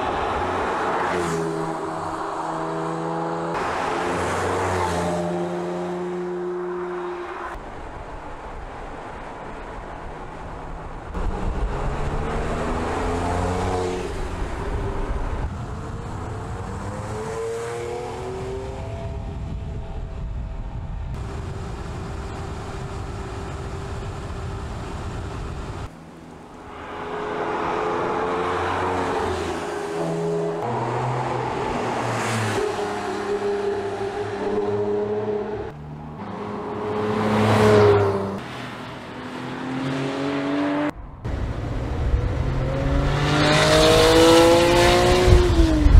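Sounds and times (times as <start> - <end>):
car engine accelerating through gears: 41.9 - 45.9.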